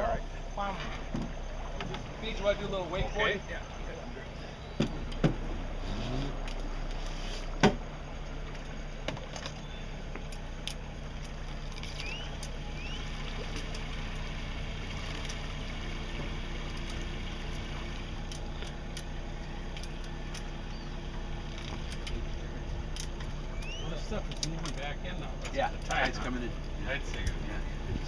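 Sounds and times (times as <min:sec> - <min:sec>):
boat engine humming: 0:00.0 - 0:28.0
water rushing along hull: 0:00.0 - 0:28.0
short rising chirps: 0:11.9 - 0:13.2.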